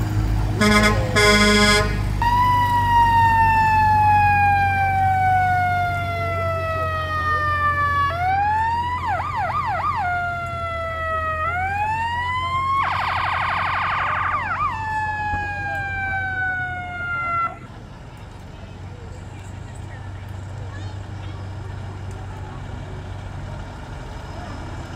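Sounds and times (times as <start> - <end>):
electronic siren: 0.6 - 17.7.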